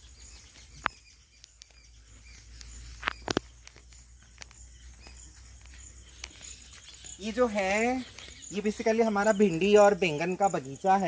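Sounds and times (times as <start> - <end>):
footsteps crunching through grass: 0.0 - 10.3
insects chirping: 0.0 - 11.0
stalks snapping: 2.5 - 4.6.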